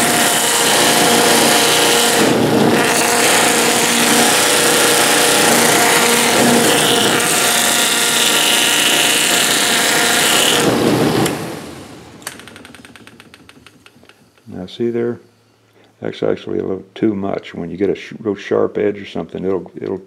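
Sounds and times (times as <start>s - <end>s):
wood rubbing on abrasive strips: 0.0s - 10.9s
sanding wheel motor hum: 0.0s - 14.2s.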